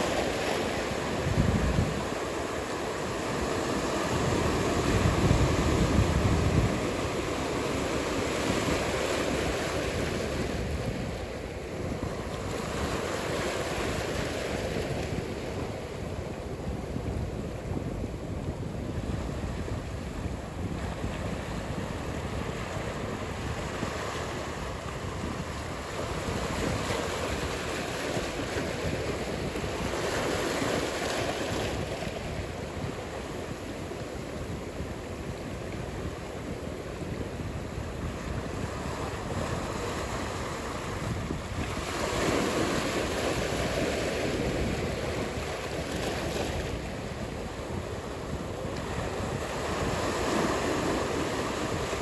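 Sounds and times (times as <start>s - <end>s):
waves breaking: 0.0s - 52.0s.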